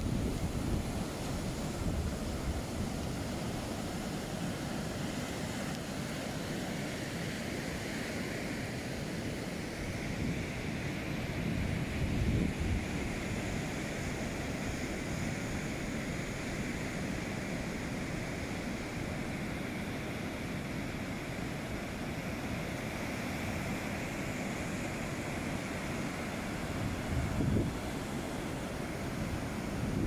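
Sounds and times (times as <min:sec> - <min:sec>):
wind rumbling on microphone: 0:00.0 - 0:03.4, 0:11.3 - 0:13.6, 0:26.8 - 0:27.9, 0:29.2 - 0:30.0
waves breaking on beach: 0:00.0 - 0:30.0.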